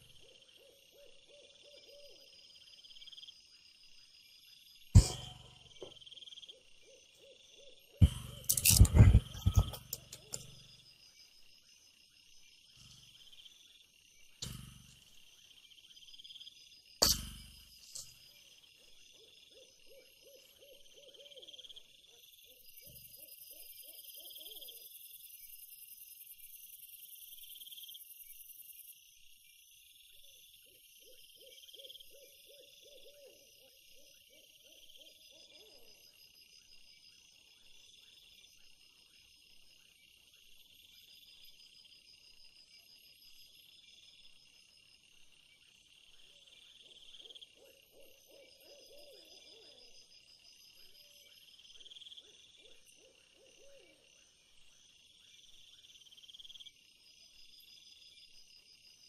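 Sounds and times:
insects chirring: 0.0s - 59.0s.

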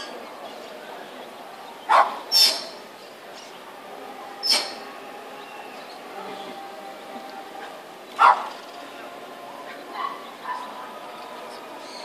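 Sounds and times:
steady background noise: 0.0s - 12.0s
dog barking: 1.9s - 2.2s, 8.2s - 8.5s.

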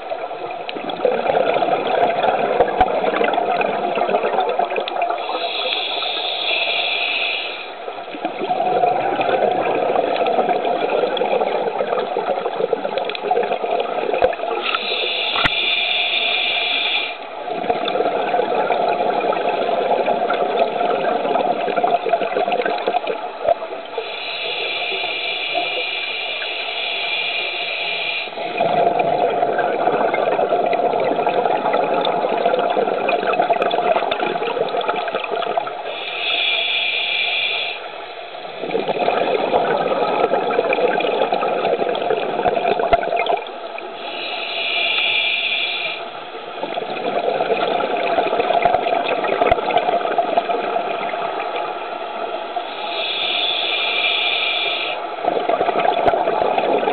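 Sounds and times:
bubbling exhale underwater: 0.0s - 6.8s, 8.1s - 15.6s, 17.4s - 25.8s, 28.4s - 35.9s, 38.5s - 43.5s, 46.6s - 51.6s, 52.9s - 56.9s
hissing regulator inhale: 5.2s - 7.8s, 14.6s - 17.2s, 24.0s - 28.6s, 35.8s - 38.0s, 43.9s - 46.2s, 52.6s - 55.1s.

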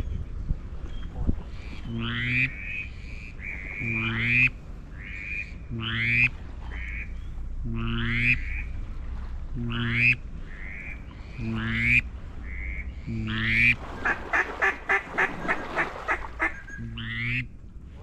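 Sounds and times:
duck call quacks: 11.4s - 17.4s.

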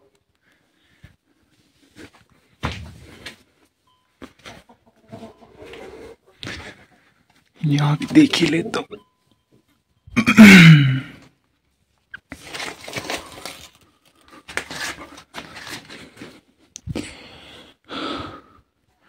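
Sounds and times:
plastic sacks rustling: 12.3s - 16.4s.

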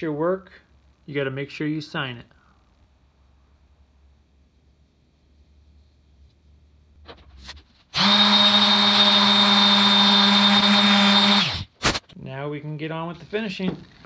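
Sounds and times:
orbital sander whining: 8.0s - 11.7s
faint handling sounds: 12.7s - 14.0s.

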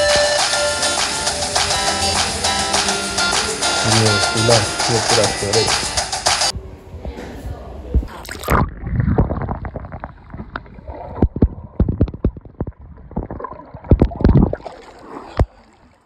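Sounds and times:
dull knocks underwater: 7.9s - 15.6s
underwater gurgling and bubbling: 8.1s - 15.9s
swimmer splashing: 14.5s - 16.0s.

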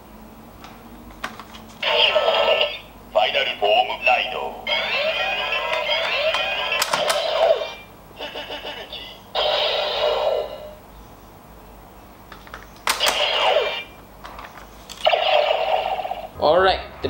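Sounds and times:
toy belt electronic sound effects: 1.8s - 10.8s, 12.9s - 14.0s
sharp plastic clicks: 6.3s - 7.3s, 12.3s - 13.3s.

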